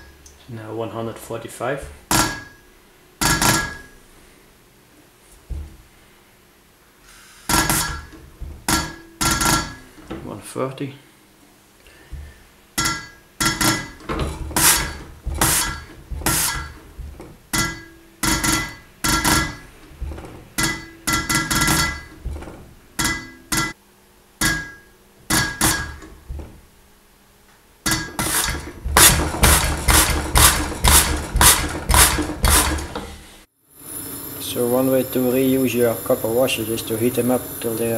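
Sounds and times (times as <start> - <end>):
diesel injector popping and spraying: 7.4 - 10.2, 12.1 - 23.3, 27.9 - 33.2.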